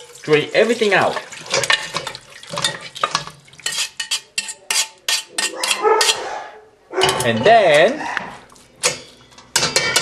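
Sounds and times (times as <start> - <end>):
liquid splashing: 0.0 - 3.8
metal utensil scraping metal pot: 1.0 - 6.3, 7.0 - 10.0.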